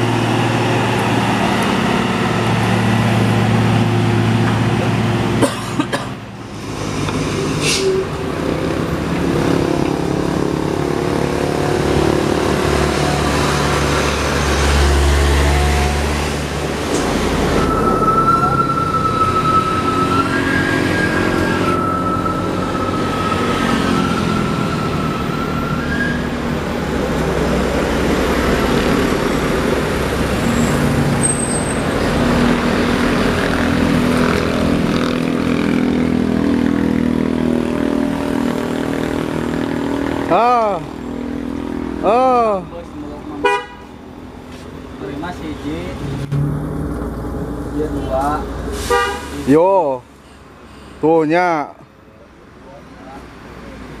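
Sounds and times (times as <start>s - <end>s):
heavy trucks engines under load: 0.0s - 54.0s
motorcycles passing: 6.2s - 48.7s.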